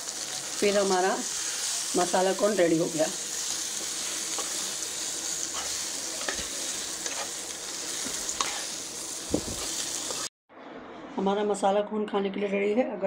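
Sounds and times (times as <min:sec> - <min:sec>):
food sizzling in a pan: 0:00.0 - 0:10.3.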